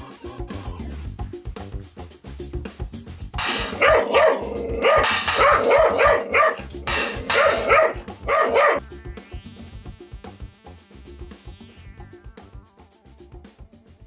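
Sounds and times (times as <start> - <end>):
background music: 0.0 - 14.0
cymbal struck with stick: 3.4 - 4.2, 4.9 - 6.0, 6.7 - 8.1
dogs snarling and barking: 3.4 - 8.8.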